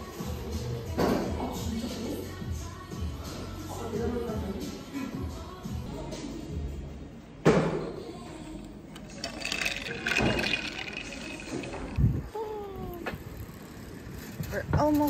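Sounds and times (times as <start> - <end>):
slurping through a straw: 9.1 - 12.1.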